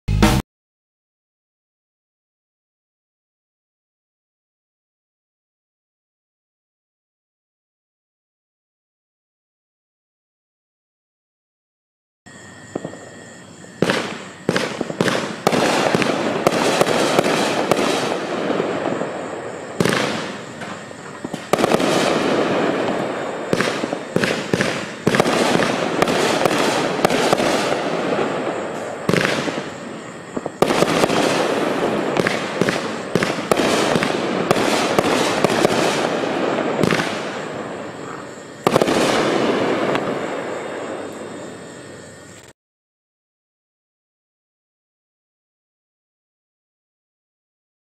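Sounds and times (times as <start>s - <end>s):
fireworks bangs: 12.3s - 42.2s.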